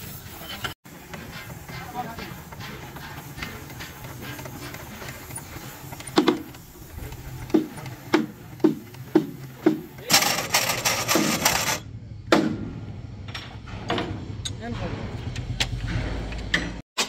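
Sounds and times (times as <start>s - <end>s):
jack mechanism knocking: 1.8s - 12.7s.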